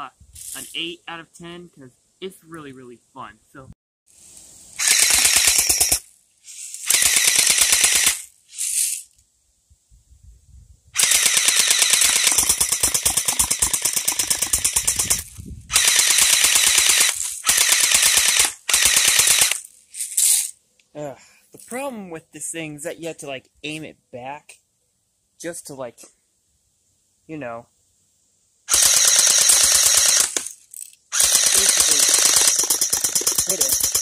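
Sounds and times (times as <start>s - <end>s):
airsoft gun firing bursts: 4.8s - 6.0s, 6.8s - 8.3s, 11.0s - 19.6s, 28.7s - 30.5s, 31.1s - 34.0s.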